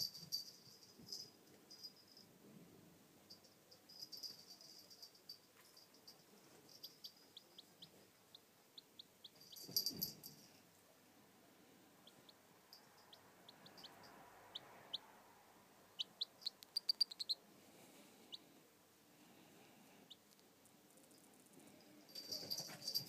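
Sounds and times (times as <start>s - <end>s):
chick peeping: 6.8s - 9.4s, 13.0s - 15.1s, 15.9s - 17.4s.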